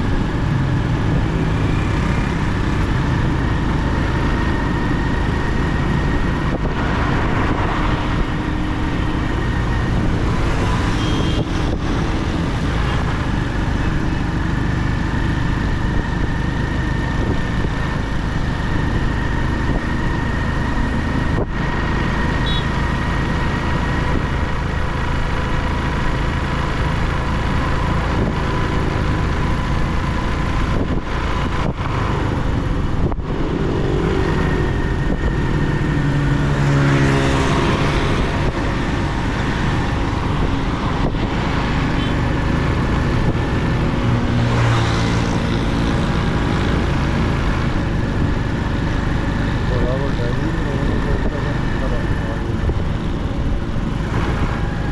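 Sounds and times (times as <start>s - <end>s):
wind rumble on microphone: 1.9s - 14.0s, 16.9s - 22.2s, 27.6s - 49.8s
motorcycle engine running: 8.1s - 54.9s.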